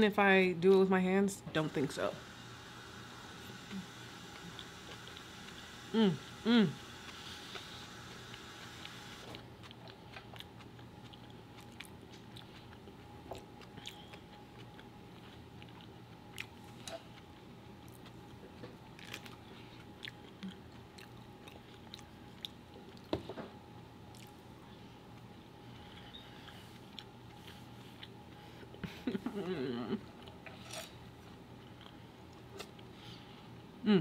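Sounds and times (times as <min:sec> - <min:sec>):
faint steady hum: 0:00.0 - 0:34.0
chewing with wet clicks: 0:08.3 - 0:23.1, 0:24.1 - 0:24.4, 0:25.9 - 0:28.4, 0:31.2 - 0:32.9.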